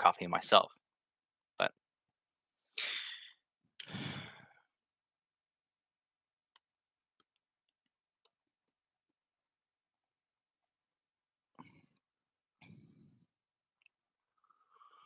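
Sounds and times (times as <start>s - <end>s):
breathy sighs: 2.8s - 4.7s.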